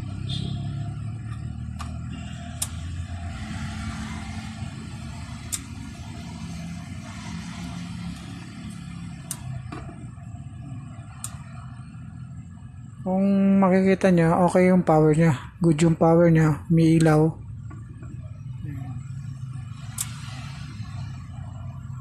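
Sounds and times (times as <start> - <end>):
low motor rumble: 16.1 - 22.0
sharp clicks: 19.9 - 20.2.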